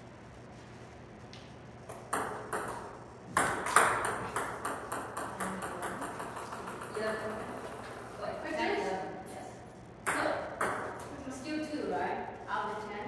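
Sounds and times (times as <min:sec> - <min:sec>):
table tennis ball rally: 0:01.9 - 0:08.1, 0:10.0 - 0:11.1.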